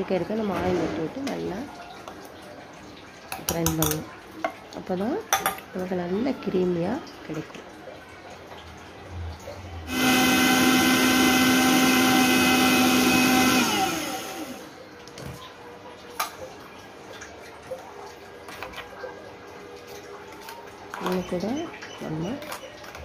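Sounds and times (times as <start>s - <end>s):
mixer grinder running: 9.9s - 14.8s.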